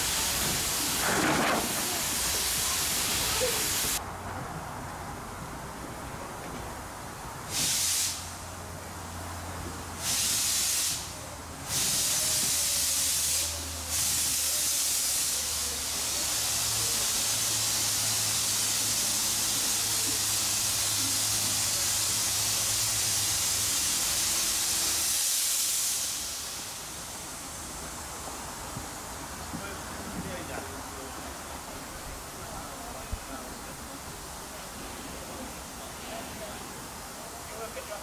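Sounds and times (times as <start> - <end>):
steam locomotive hissing steam: 0.0 - 4.0, 7.4 - 38.0.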